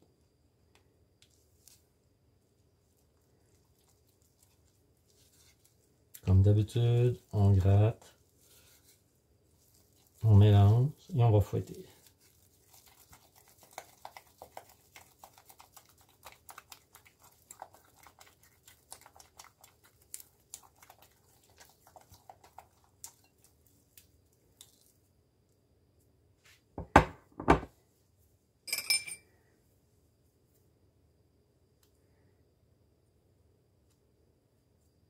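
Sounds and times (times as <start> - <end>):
spatula slapping and scraping batter: 11.6 - 24.8
knocks on bowl: 26.8 - 27.7
ringing clink: 28.7 - 29.3.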